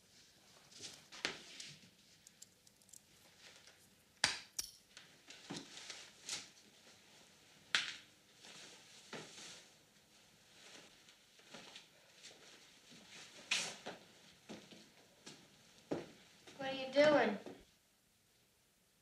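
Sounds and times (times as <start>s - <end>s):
clinks and knocks: 4.5s - 4.9s.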